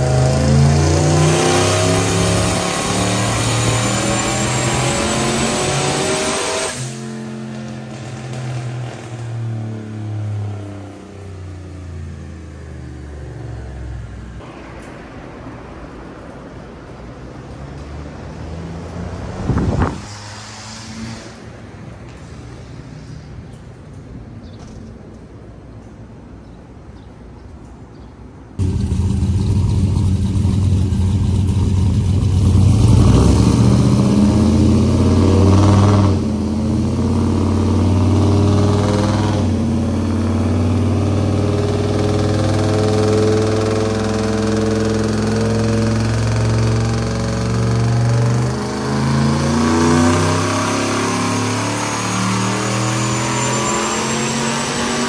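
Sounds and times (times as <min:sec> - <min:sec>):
engine running hard: 0:00.0 - 0:09.2, 0:19.2 - 0:20.1, 0:28.6 - 0:55.0.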